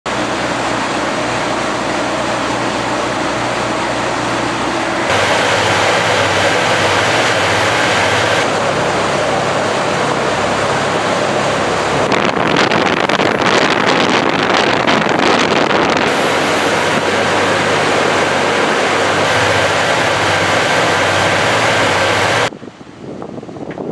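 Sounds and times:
boat engine drone: 0:00.1 - 0:22.5
wind: 0:00.1 - 0:23.9
rushing water: 0:00.2 - 0:22.5
thin high whine: 0:05.0 - 0:11.3, 0:16.0 - 0:22.5.

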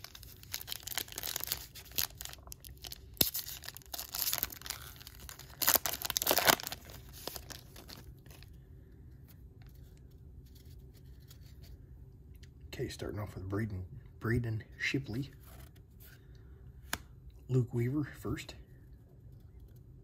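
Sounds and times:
wrapper tearing and crinkling: 0:00.0 - 0:08.4
cards rustling: 0:00.0 - 0:08.6.

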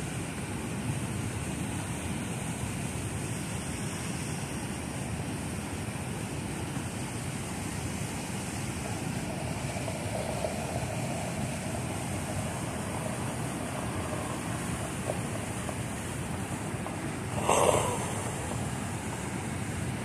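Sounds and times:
muffled rushing noise: 0:08.8 - 0:20.0.

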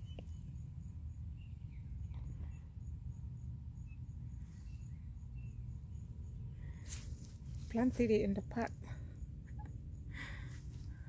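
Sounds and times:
faint bird chirps: 0:00.0 - 0:07.0
insects chirping: 0:00.0 - 0:11.0.

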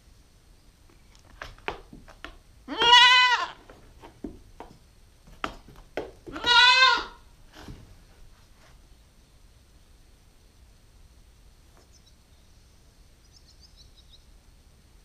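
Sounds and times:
goat kid bleating: 0:02.7 - 0:03.8, 0:06.3 - 0:07.3.

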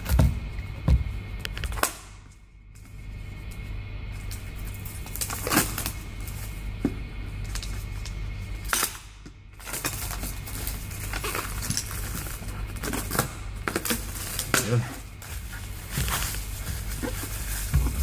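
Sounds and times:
steady low hum: 0:00.0 - 0:18.0
plastic wrapping crinkling and tearing: 0:04.2 - 0:06.6, 0:09.6 - 0:18.0.

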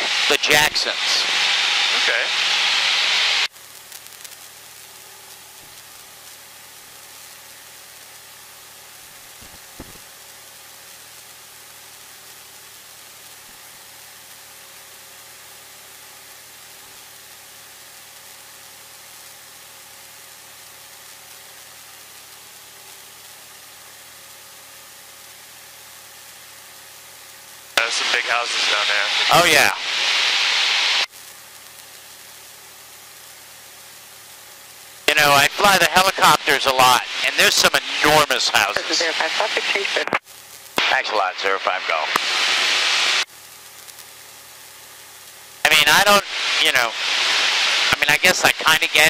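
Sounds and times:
intercom hiss: 0:00.0 - 0:03.5, 0:27.8 - 0:31.1, 0:35.1 - 0:40.2, 0:40.8 - 0:43.2, 0:45.6 - 0:49.0
faint aircraft engine drone: 0:00.0 - 0:19.2, 0:26.7 - 0:49.0.

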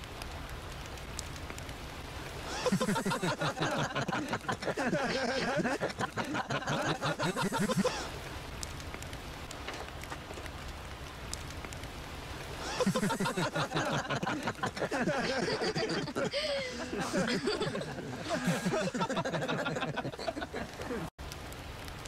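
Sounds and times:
faint clicks: 0:00.0 - 0:04.8, 0:08.5 - 0:13.0, 0:20.3 - 0:22.0
campfire crackling: 0:00.0 - 0:22.0
outdoor hiss: 0:00.0 - 0:22.0
men laughing: 0:02.5 - 0:08.1, 0:12.6 - 0:21.1.

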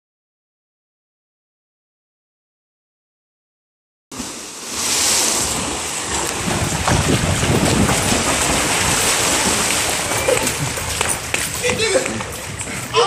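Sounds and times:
swimmers splashing in pool: 0:04.1 - 0:13.0.

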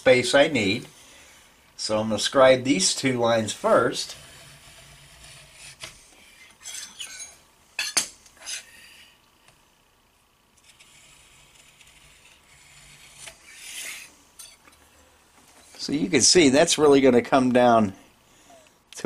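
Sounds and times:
scriber scraping metal: 0:03.6 - 0:07.4, 0:10.6 - 0:14.6.

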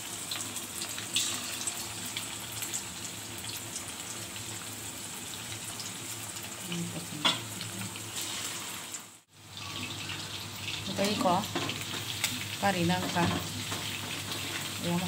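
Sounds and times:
chicken deep-frying in oil: 0:00.0 - 0:15.0.

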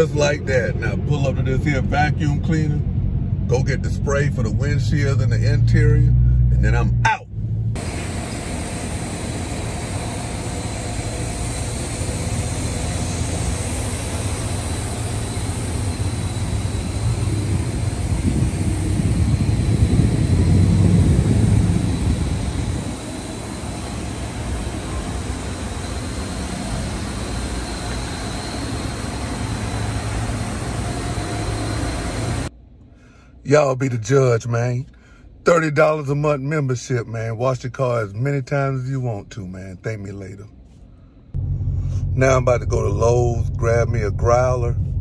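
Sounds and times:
motor whining and roaring: 0:00.0 - 0:32.5.

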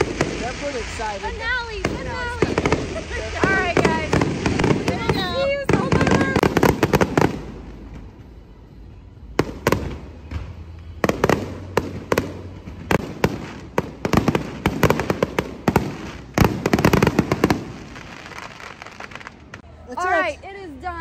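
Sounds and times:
fireworks bangs and crackling: 0:00.0 - 0:08.5, 0:09.2 - 0:19.6.

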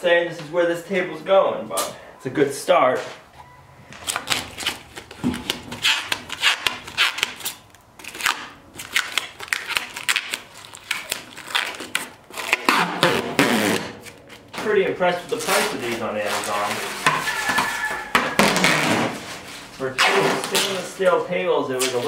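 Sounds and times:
packing wrap crinkling: 0:04.0 - 0:14.5, 0:15.3 - 0:21.0.

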